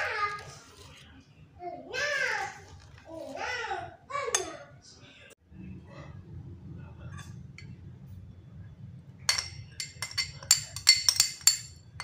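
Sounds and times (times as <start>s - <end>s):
metal spoon clinking glass bowl: 9.3s - 12.0s.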